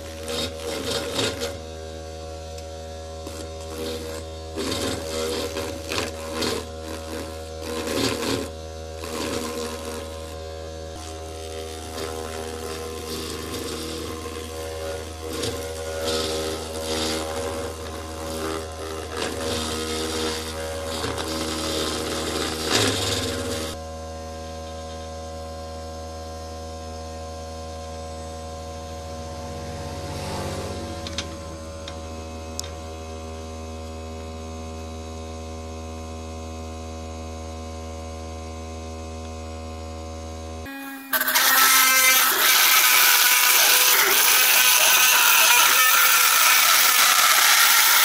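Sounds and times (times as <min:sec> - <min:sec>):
bit grinding into plastic: 0:00.0 - 0:01.7, 0:02.6 - 0:10.4, 0:11.8 - 0:23.8, 0:41.1 - 0:48.0
motor humming: 0:00.0 - 0:48.0.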